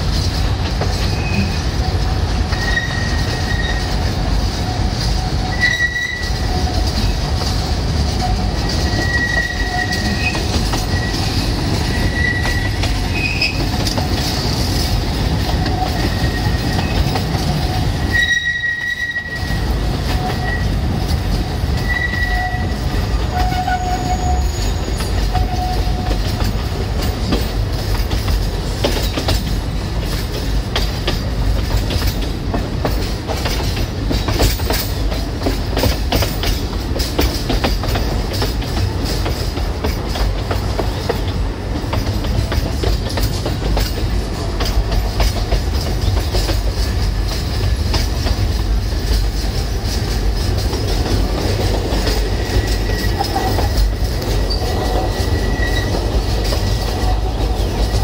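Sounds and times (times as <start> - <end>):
train wheels rumbling on rail: 0.0 - 58.0
high-pitched wheel squeals: 2.5 - 4.0, 4.8 - 6.9, 8.2 - 13.6, 15.6 - 20.8, 21.7 - 26.2, 52.0 - 58.0.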